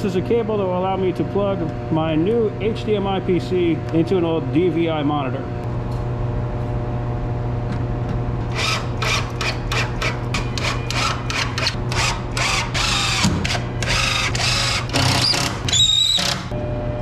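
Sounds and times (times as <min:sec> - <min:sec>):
cordless drill driving screws: 0:08.5 - 0:16.5.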